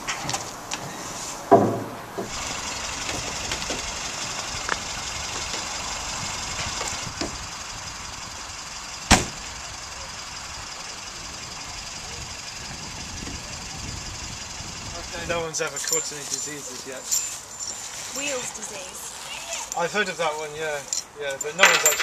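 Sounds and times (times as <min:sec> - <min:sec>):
outdoor background noise: 0:00.0 - 0:22.0
car door thumps: 0:01.5 - 0:02.4, 0:09.1 - 0:09.4.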